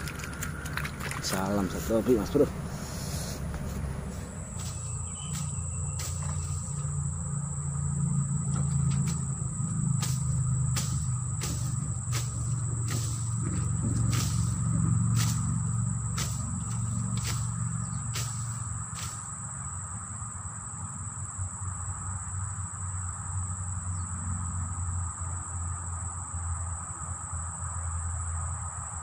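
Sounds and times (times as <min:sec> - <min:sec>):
insects calling: 0:00.0 - 0:29.0
low steady hum: 0:00.0 - 0:29.0
sharp ticks: 0:08.5 - 0:19.3.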